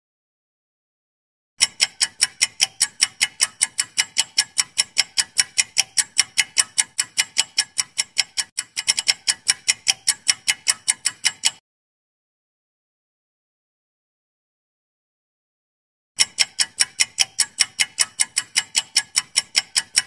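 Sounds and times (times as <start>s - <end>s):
rapid clock ticks: 1.6s - 11.6s, 16.2s - 20.0s.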